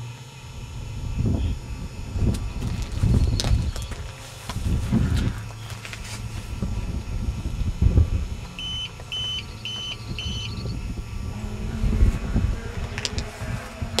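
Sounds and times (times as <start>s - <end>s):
low steady hum: 0.0s - 14.0s
short high electronic beeps: 8.6s - 10.8s.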